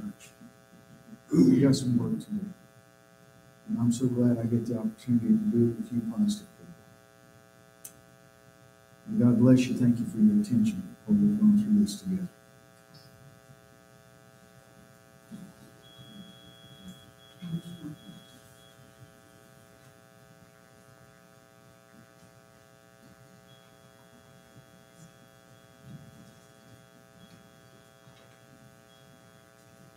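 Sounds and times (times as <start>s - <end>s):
electrical hum: 0.0s - 29.9s.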